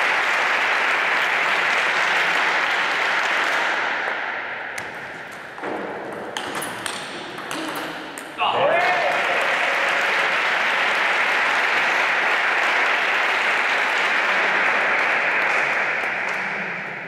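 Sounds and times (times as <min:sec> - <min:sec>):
spectators applauding: 0:00.0 - 0:04.0, 0:08.5 - 0:17.0.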